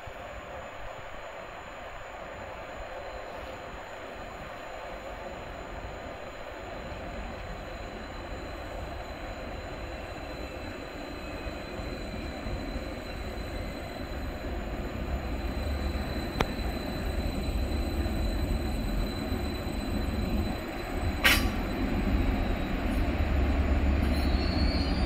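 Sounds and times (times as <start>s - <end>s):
train engines and wheels rumbling: 0.0s - 25.0s
sharp click: 21.2s - 21.6s.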